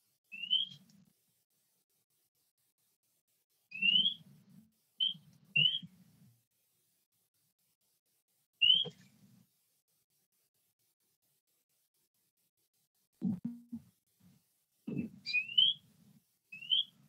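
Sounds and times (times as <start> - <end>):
bird whistled chirps: 0.3 - 0.8, 3.7 - 4.2, 5.0 - 5.9, 8.6 - 9.0, 15.2 - 15.8, 16.5 - 17.0.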